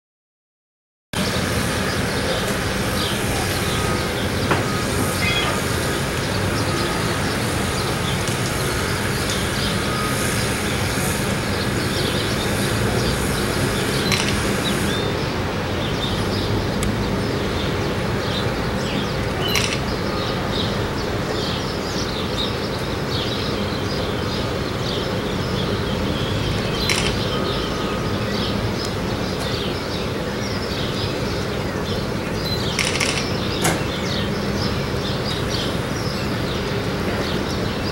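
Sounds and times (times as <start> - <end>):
outdoor rumble and hiss: 1.2 - 37.9
sharp clicks: 14.0 - 14.9, 19.3 - 20.0, 26.8 - 27.4, 32.8 - 33.8.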